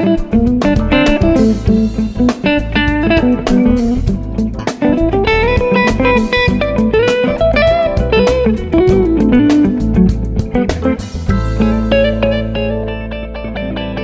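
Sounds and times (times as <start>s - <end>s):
drums: 0.0s - 13.0s
bass: 0.0s - 14.0s
electric guitar lead: 0.0s - 14.0s.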